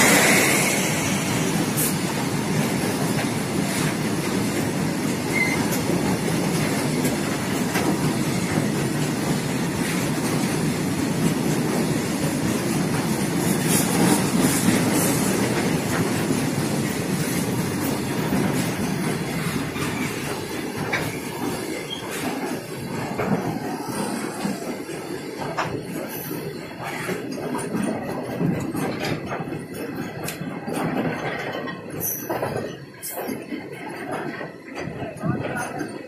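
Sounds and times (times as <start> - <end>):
train wheels rumbling on rails: 0.0 - 36.0
clacks at rail joints: 1.6 - 36.0.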